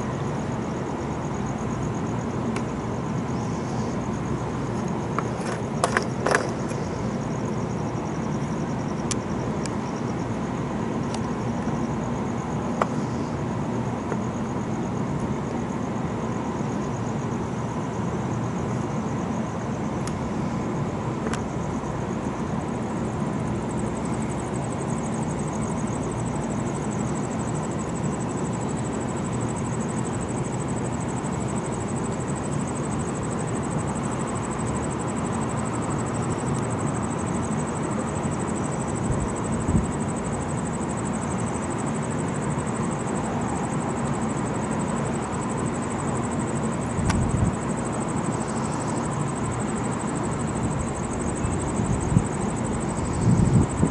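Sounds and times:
distant traffic hum: 0:00.0 - 0:53.9
faint high pulsing buzz: 0:00.0 - 0:53.9.

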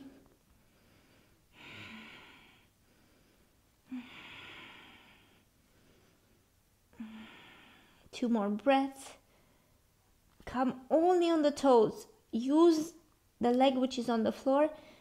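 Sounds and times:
woman breathing slowly: 0:00.0 - 0:08.1, 0:09.2 - 0:10.0, 0:14.8 - 0:15.0.

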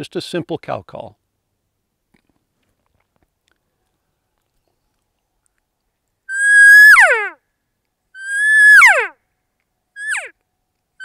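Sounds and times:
elk call blown: 0:06.3 - 0:07.4, 0:08.2 - 0:09.2, 0:10.0 - 0:10.3.

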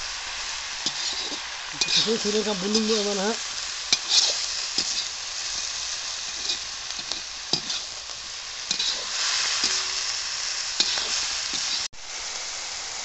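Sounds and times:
chicken and onions sizzling: 0:00.0 - 0:13.0
metal spoon scraping pan: 0:00.8 - 0:03.2, 0:03.9 - 0:08.0, 0:08.7 - 0:10.1, 0:10.8 - 0:11.9.

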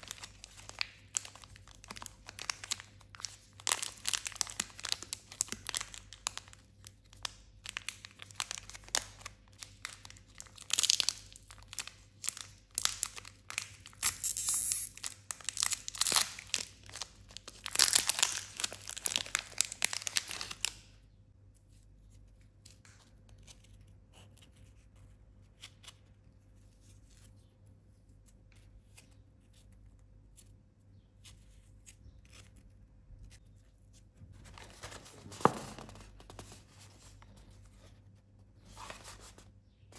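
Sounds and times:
plastic wrapper crinkling and tearing: 0:00.0 - 0:21.0.

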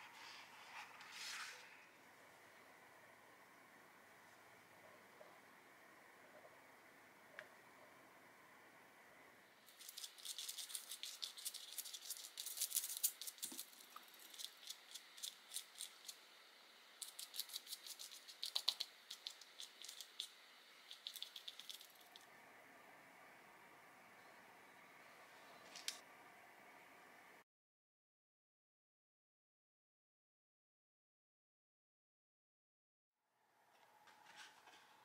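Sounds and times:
paintbrush scrubbing on paper: 0:09.7 - 0:16.2, 0:17.0 - 0:22.2.

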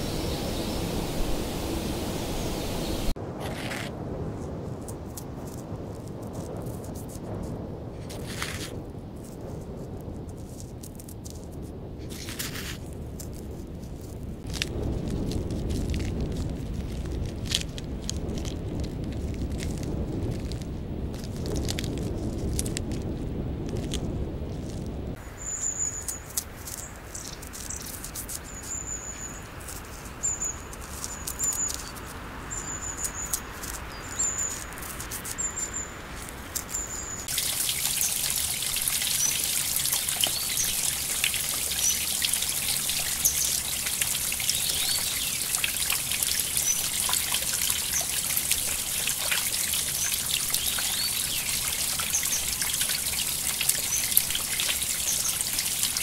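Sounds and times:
trickling stream: 0:00.0 - 0:07.2, 0:10.3 - 0:56.0
small bird chirping: 0:25.3 - 0:56.0.

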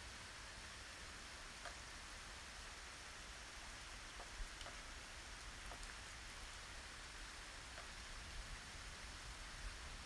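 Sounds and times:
steady rain hiss: 0:00.0 - 0:10.0.

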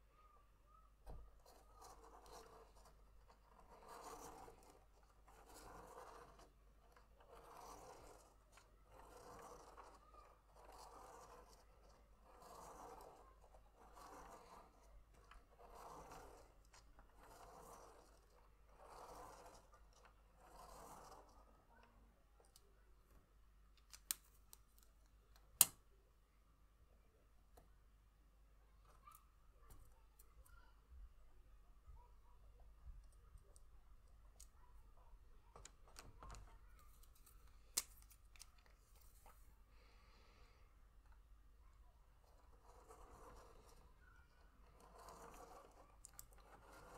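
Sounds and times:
pen scratching on paper: 0:01.1 - 0:21.9, 0:42.0 - 0:46.9
soft paper rustle: 0:33.0 - 0:39.6.

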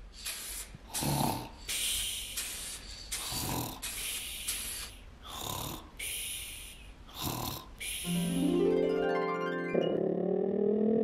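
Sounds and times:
hissing out-breath: 0:00.2 - 0:05.4
cartoon snoring: 0:00.9 - 0:01.6, 0:03.2 - 0:03.8, 0:05.3 - 0:05.9, 0:07.1 - 0:07.7, 0:09.8 - 0:11.0.

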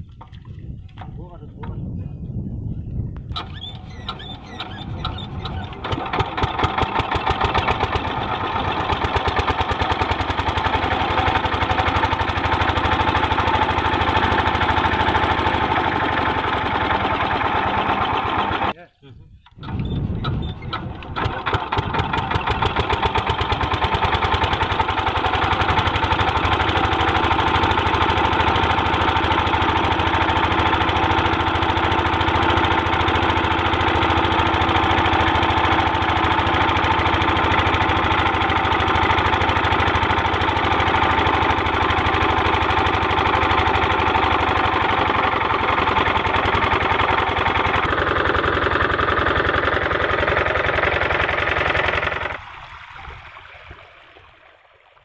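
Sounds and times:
diesel engine running: 0:03.3 - 0:18.8, 0:19.6 - 0:54.4.

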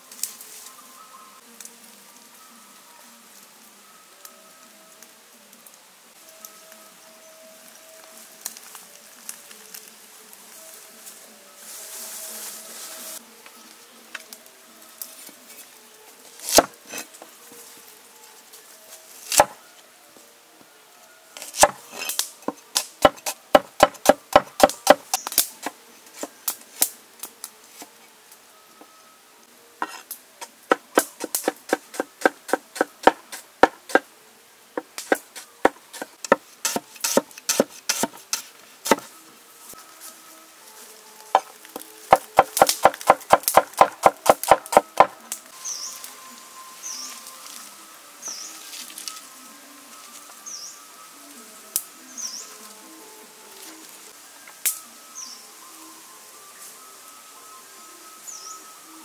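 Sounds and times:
knife chopping on wooden table: 0:16.5 - 0:17.0, 0:21.4 - 0:21.8, 0:23.0 - 0:25.1.

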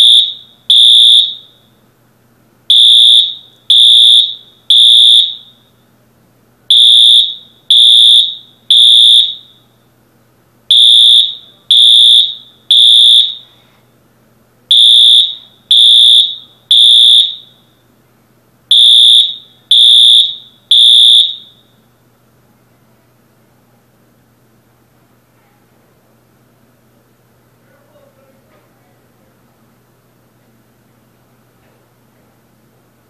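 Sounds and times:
fire alarm beeping: 0:00.0 - 0:01.6, 0:02.7 - 0:05.7, 0:06.7 - 0:09.7, 0:10.7 - 0:13.5, 0:14.7 - 0:17.7, 0:18.7 - 0:21.8.

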